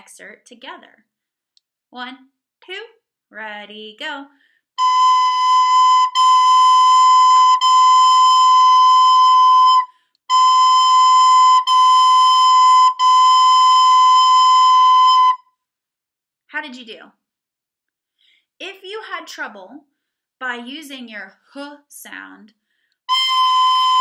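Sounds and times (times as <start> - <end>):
recorder playing held notes: 4.8 - 15.4, 23.1 - 24.0.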